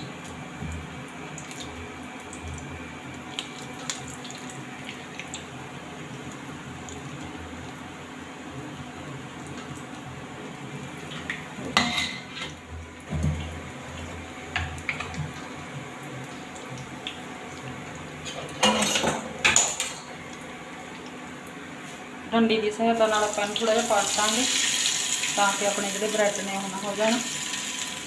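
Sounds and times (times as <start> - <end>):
food sizzling in oil: 0.1 - 22.1, 22.9 - 28.0
metal utensil clinking on pan: 11.8 - 12.4.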